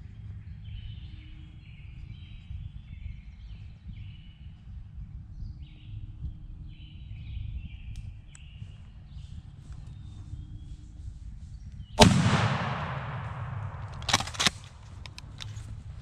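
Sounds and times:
songbirds singing: 0.0s - 16.0s
wind rumble on microphone: 0.0s - 16.0s
sharp click: 12.0s - 15.6s.

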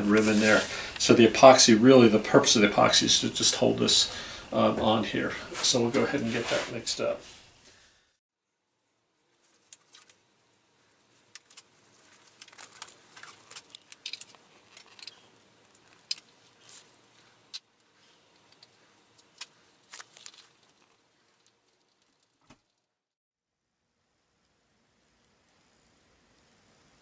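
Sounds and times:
plastic pack being opened: 11.3s - 16.3s, 18.5s - 22.7s.

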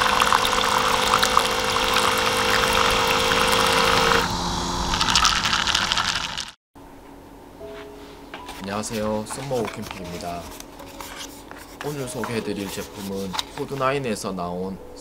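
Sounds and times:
fizzing in cup: 0.0s - 4.2s
water pump humming: 0.0s - 6.6s.

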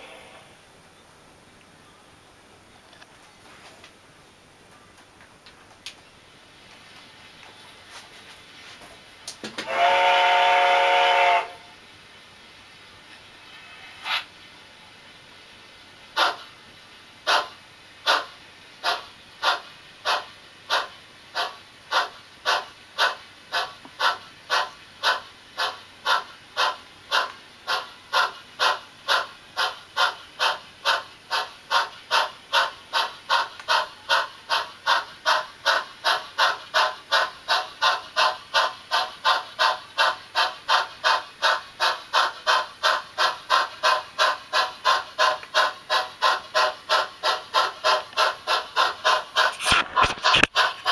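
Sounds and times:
steam locomotive exhaust chuffs: 9.1s - 12.4s, 15.2s - 50.9s.

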